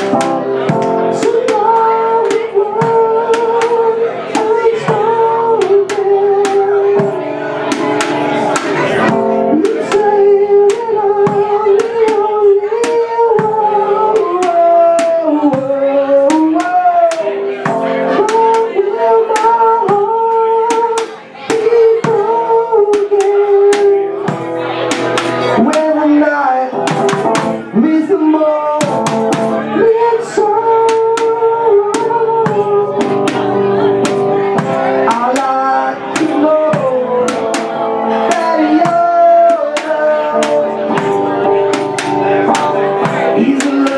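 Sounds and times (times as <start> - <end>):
man singing: 0.0 - 43.9
strummed electric guitar: 0.0 - 43.9
drumsticks hitting makeshift drums: 26.8 - 27.6, 30.8 - 43.9.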